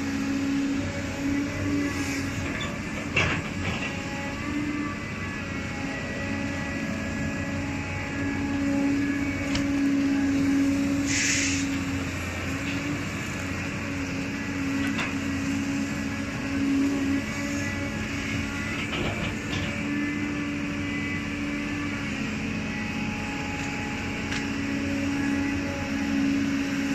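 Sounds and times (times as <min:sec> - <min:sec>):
excavator diesel engine droning: 0:00.0 - 0:26.9
hydraulic hiss: 0:11.0 - 0:11.9.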